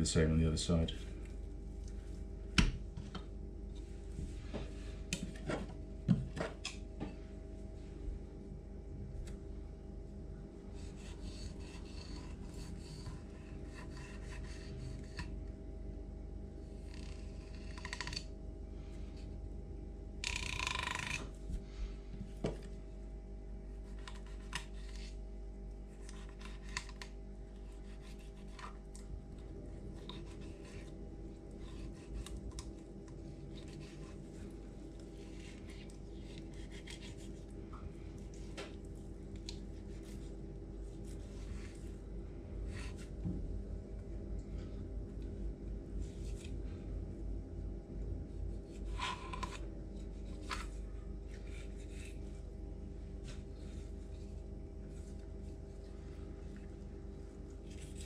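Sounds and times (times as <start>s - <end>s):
steady low hum: 0.0s - 58.0s
knife scraping fish flesh: 10.8s - 15.1s, 25.9s - 28.8s, 29.9s - 32.4s, 33.5s - 37.4s.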